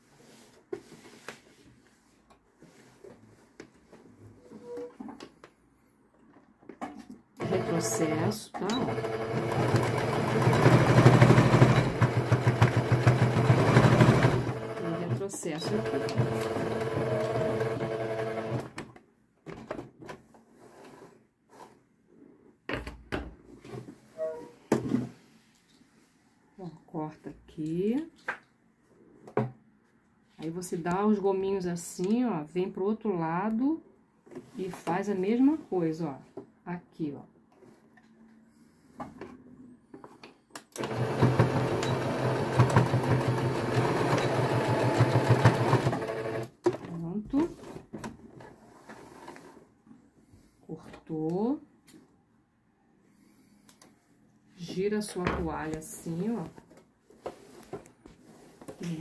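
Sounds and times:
sewing machine stitching: 7.4s - 18.8s, 40.8s - 46.6s.

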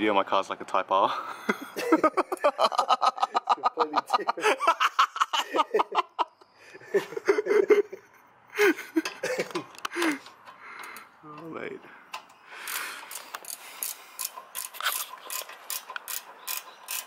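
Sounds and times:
men laughing: 1.1s - 10.4s.

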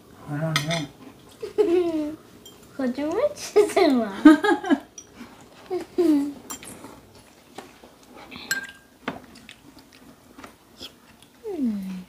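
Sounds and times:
metal spoons clinking against bowls: 0.5s - 0.9s, 2.4s - 4.0s, 4.9s - 5.2s, 6.5s - 6.8s, 8.4s - 9.0s.

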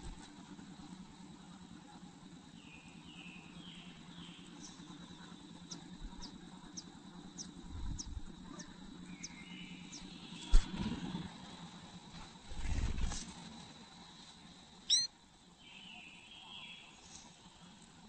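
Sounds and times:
low steady hum: 0.0s - 18.0s
nestlings chirping: 2.8s - 10.5s, 14.9s - 15.1s
soft low rumble: 4.8s - 14.5s.

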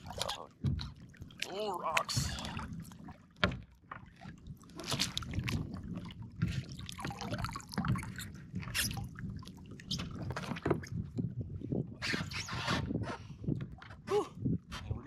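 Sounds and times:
light splashes and drips: 0.0s - 11.2s
small waves lapping against hull: 0.0s - 15.0s.

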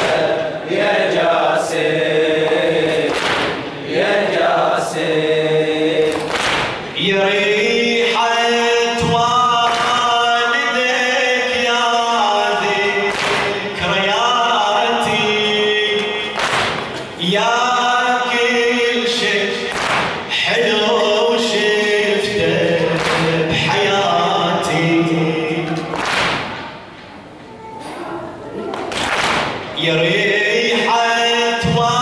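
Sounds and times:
chorus of voices: 0.0s - 32.0s
man chanting over microphone: 6.9s - 26.0s, 29.6s - 32.0s.

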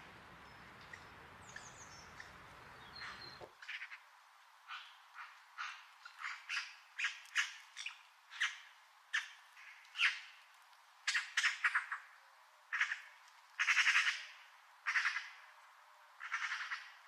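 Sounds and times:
magpie squawking: 13.6s - 14.3s, 14.9s - 15.3s, 16.2s - 16.9s.

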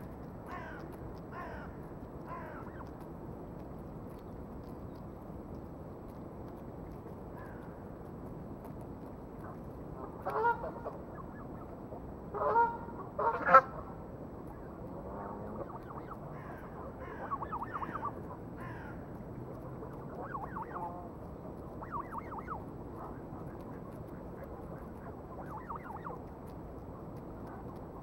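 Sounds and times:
geese honking: 10.0s - 11.4s, 12.3s - 13.9s, 15.0s - 26.2s.

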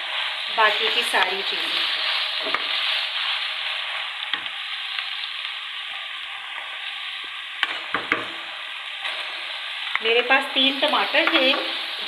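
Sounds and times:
meat sizzling in hot oil: 0.0s - 12.0s
wooden spatula stirring: 0.1s - 5.2s.

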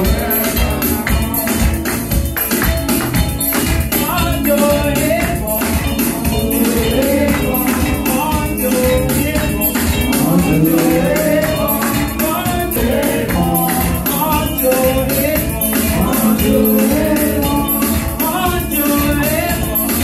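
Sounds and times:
instrumental accompaniment: 0.0s - 20.0s
steady percussion beat: 0.0s - 20.0s
woman singing into microphone: 4.5s - 20.0s.

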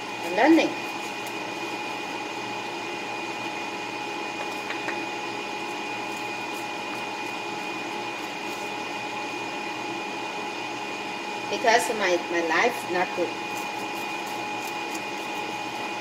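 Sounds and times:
small motor whirring hum: 0.0s - 16.0s.

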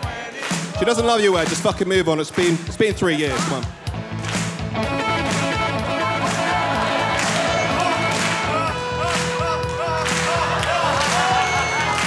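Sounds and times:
repeating bass line: 3.8s - 12.0s
electronic keyboard chords: 3.9s - 12.0s.

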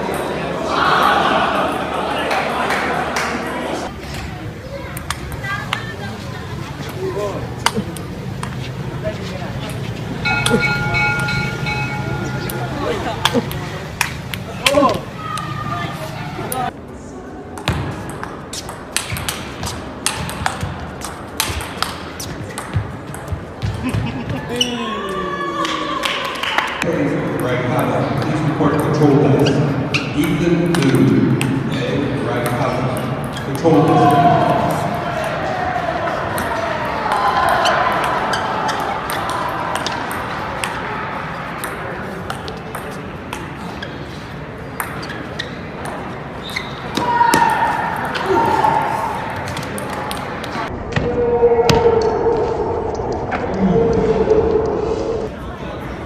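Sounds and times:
table tennis ball clicking: 4.9s - 5.9s.

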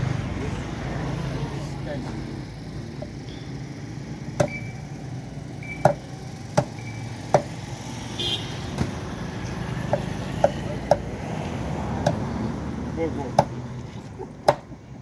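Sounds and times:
machete chopping on cutting board: 6.6s - 7.5s, 13.4s - 13.6s, 14.4s - 14.7s.

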